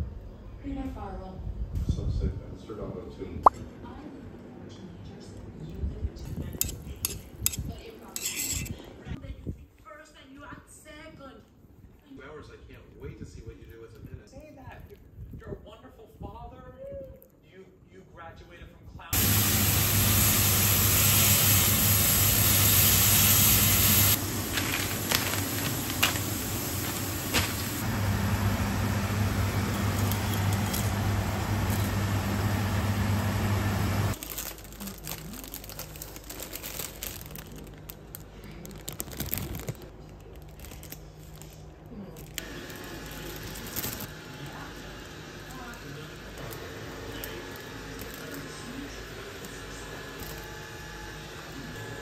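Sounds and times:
low hum: 19.2 - 34.2
pot hissing on stove: 19.2 - 34.2
plastic packaging rustling: 24.1 - 28.0, 34.1 - 44.1.

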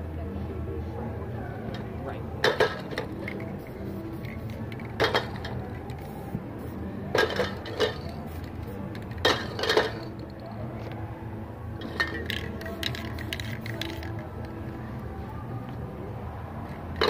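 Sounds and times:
metal spray cans clinking: 2.4 - 10.4, 11.8 - 14.6.

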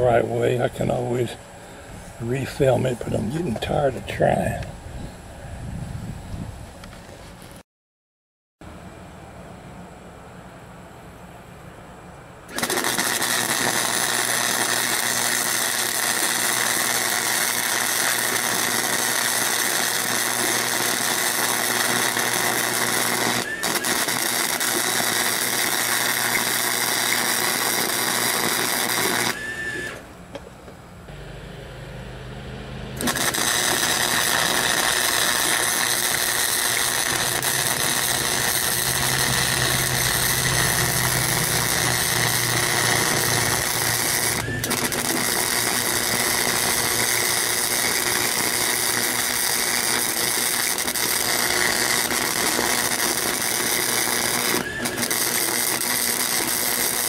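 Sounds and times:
welding arc crackling: 12.5 - 30.1, 33.0 - 57.0.

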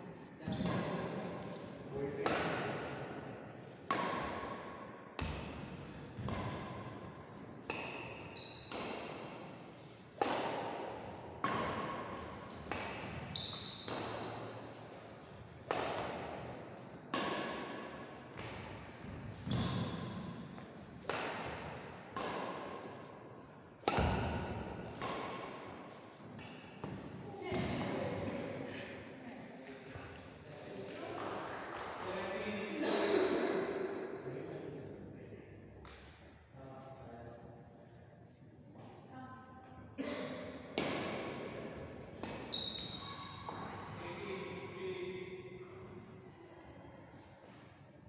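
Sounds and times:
shoes squeaking on wooden court: 0.4 - 2.3, 8.1 - 9.8, 10.7 - 11.7, 12.4 - 15.9, 19.0 - 21.2, 42.2 - 44.0
rackets striking shuttlecock: 3.8 - 4.6, 5.2 - 14.8, 15.5 - 23.1, 23.8 - 27.1, 40.8 - 41.4, 42.1 - 42.7.

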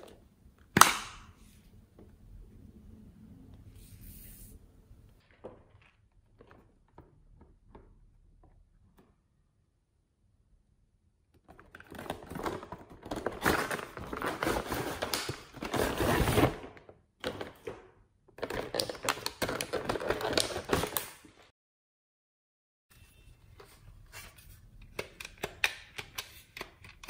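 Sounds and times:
plastic toy packaging crackling: 18.4 - 21.2.

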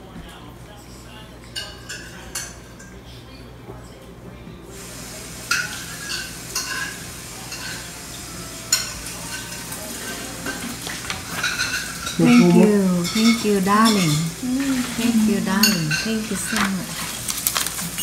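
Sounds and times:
dishes and cutlery clinking: 0.7 - 3.0, 5.5 - 18.0
steady hiss: 4.7 - 8.6.

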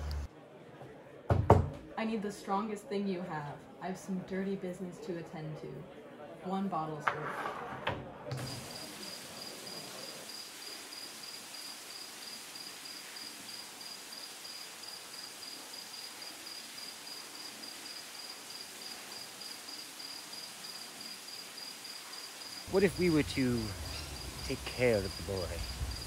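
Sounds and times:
faint outdoor hiss: 8.3 - 26.0
crickets chirping: 8.4 - 26.0.

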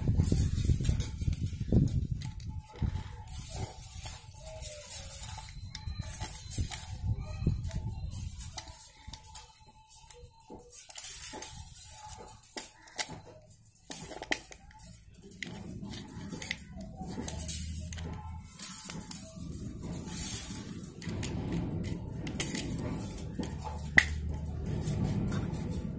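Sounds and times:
metal blade clicking and scraping: 8.4 - 25.9.

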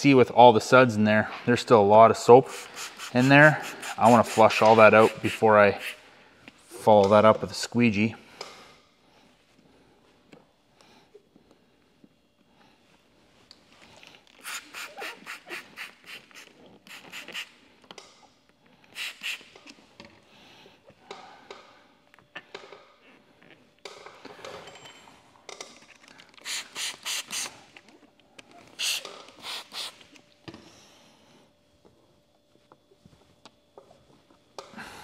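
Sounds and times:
spray bottle squirts: 14.4 - 17.5, 19.0 - 19.6, 26.4 - 27.6, 28.8 - 30.0.

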